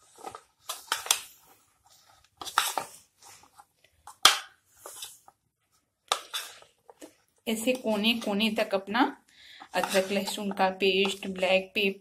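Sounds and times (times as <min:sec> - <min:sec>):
metal spoon scraping a bowl: 0:06.1 - 0:06.7, 0:09.6 - 0:11.5.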